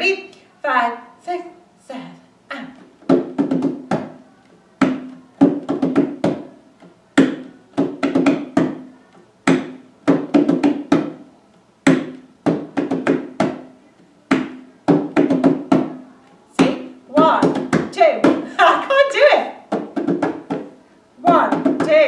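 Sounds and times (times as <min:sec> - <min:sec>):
hand drum rhythm: 0:03.0 - 0:22.0.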